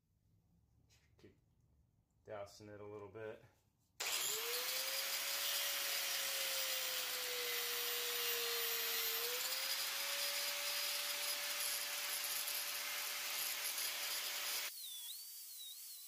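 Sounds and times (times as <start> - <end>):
angle grinder cutting plastic: 4.0 - 16.0.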